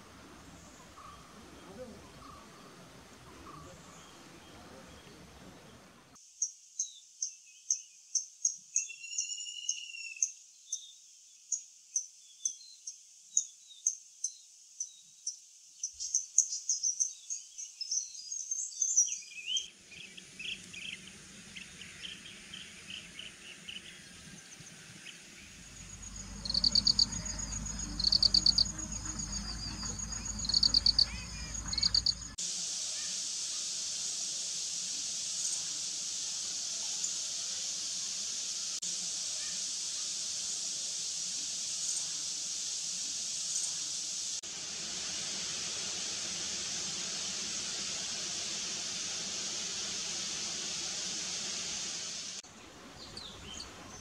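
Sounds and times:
steady high hiss: 0.0s - 54.0s
lower chirps: 25.2s - 32.4s
low rumble: 25.4s - 32.4s
rapid high trills: 25.7s - 32.4s.

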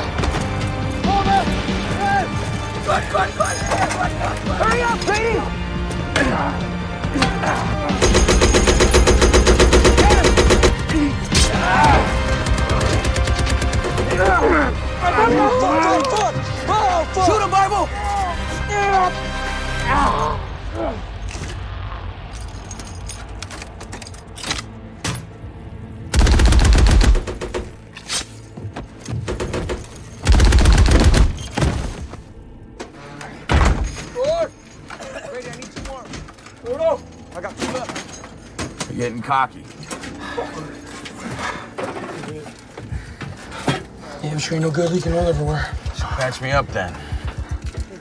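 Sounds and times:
rapid machine-gun fire: 8.0s - 10.8s, 26.2s - 27.8s, 29.3s - 31.4s.

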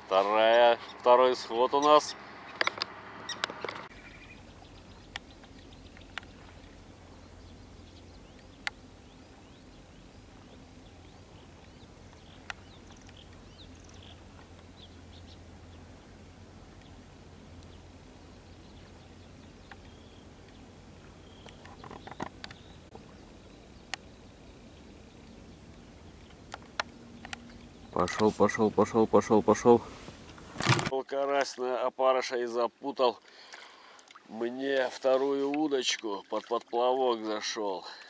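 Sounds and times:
steady low hum: 0.0s - 30.6s
faint bird chirps: 0.4s - 16.1s, 17.6s - 28.0s
sharp clicks: 26.5s - 28.2s.

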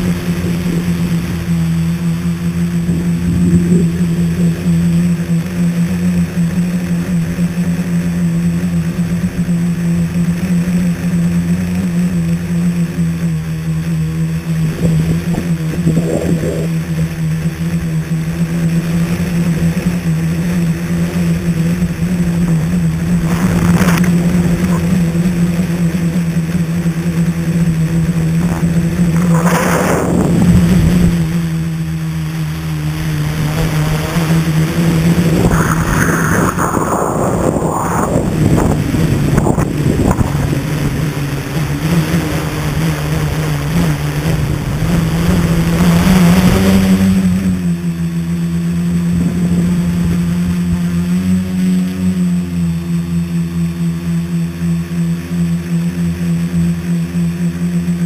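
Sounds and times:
drone propellers humming: 0.0s - 58.0s
brief rushes of air: 35.3s - 38.8s.

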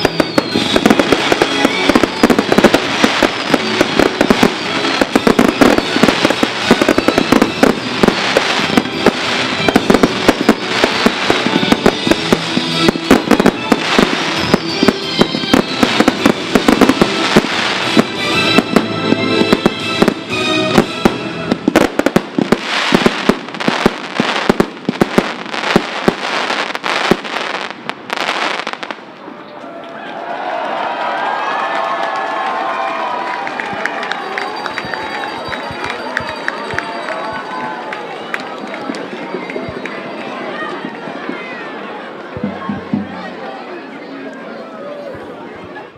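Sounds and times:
music: 0.0s - 22.6s
fireworks bursting and crackling: 0.0s - 29.4s, 33.6s - 37.8s.

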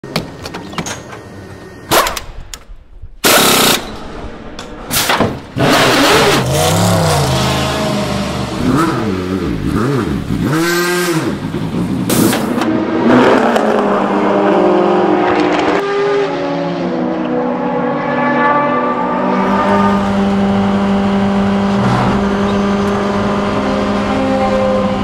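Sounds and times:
race car engine revving: 5.5s - 25.0s.

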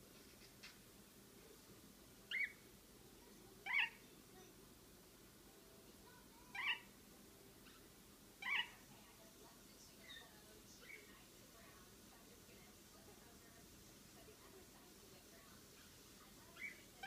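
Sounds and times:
parakeet chirps: 2.3s - 2.7s, 3.6s - 4.1s, 6.5s - 6.9s, 7.6s - 8.8s, 10.0s - 11.2s, 15.7s - 17.0s.

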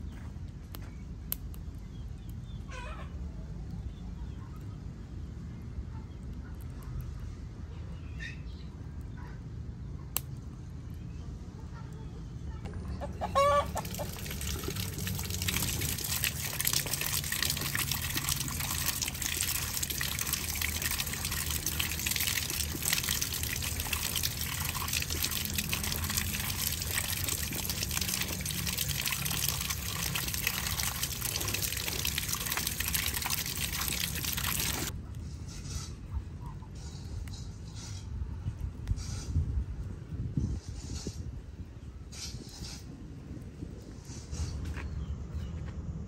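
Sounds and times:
water gushing from a pipe: 13.0s - 34.9s
splashing and rattling in basket: 13.4s - 34.9s.

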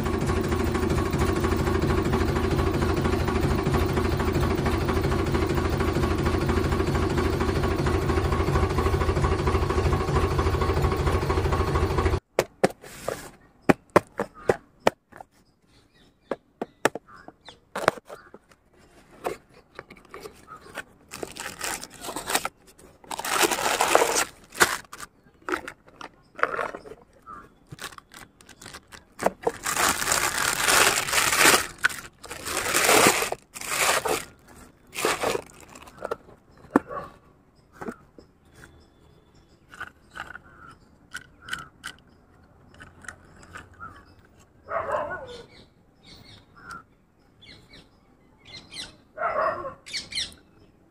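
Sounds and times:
engine idling: 0.0s - 12.3s, 20.0s - 36.9s
packaging rustling and tearing: 20.0s - 27.0s, 27.6s - 36.2s.

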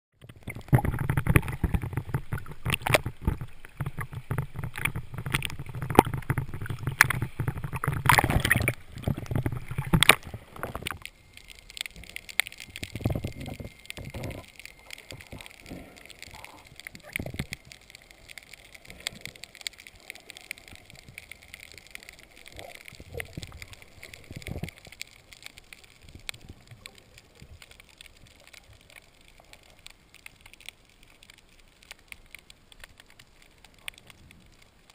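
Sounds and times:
water splashing and gurgling: 0.1s - 34.9s.

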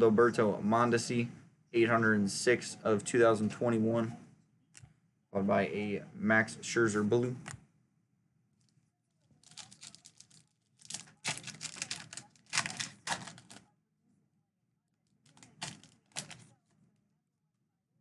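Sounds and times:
foil wrapper crinkling and tearing: 9.3s - 13.6s, 15.3s - 16.5s.

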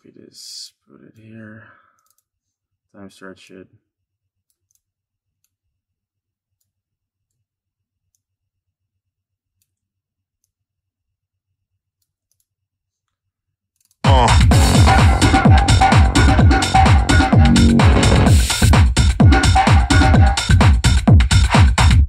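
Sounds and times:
tech house music: 14.1s - 22.0s.

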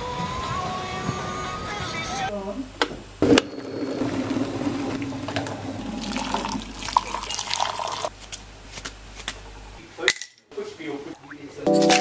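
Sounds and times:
water pouring into a mug: 4.0s - 8.1s.

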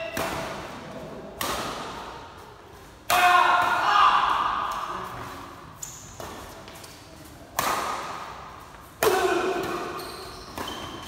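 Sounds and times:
racket hitting shuttlecock: 0.0s - 0.8s, 1.4s - 2.3s, 7.5s - 11.0s.

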